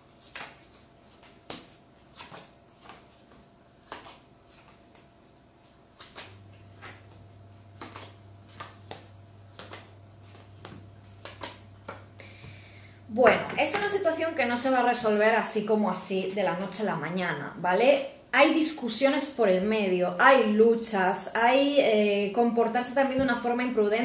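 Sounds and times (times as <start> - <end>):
cards flicked and tapped on table: 0.2 - 5.1, 6.0 - 7.2, 7.8 - 12.1.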